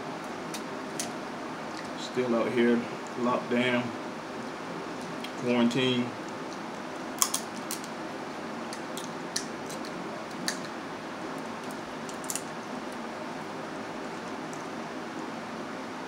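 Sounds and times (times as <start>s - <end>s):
electric fan running: 0.0s - 16.0s
crab shells cracking: 7.1s - 8.0s, 8.7s - 10.8s, 11.4s - 13.0s.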